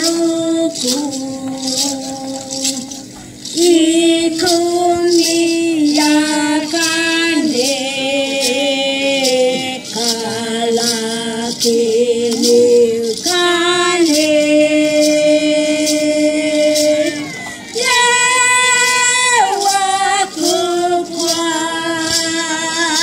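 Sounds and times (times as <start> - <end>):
two women singing: 0.0 - 23.0.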